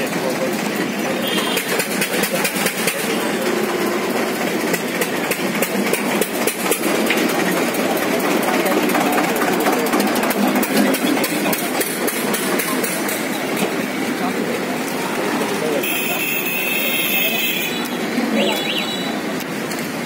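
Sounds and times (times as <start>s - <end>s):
engine running: 0.0s - 16.0s
crowd voices: 0.0s - 20.0s.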